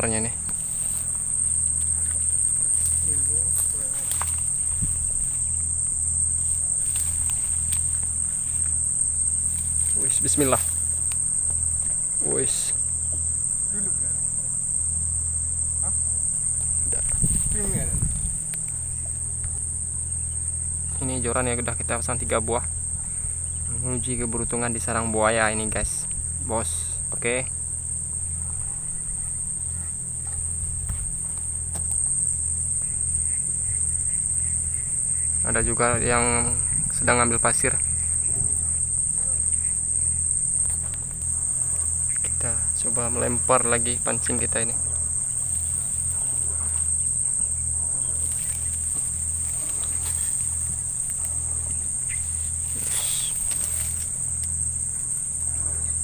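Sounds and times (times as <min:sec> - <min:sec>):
low rumble: 0:00.0 - 0:25.0
insects trilling: 0:00.0 - 0:56.0
low pulsing hum: 0:00.0 - 0:56.0.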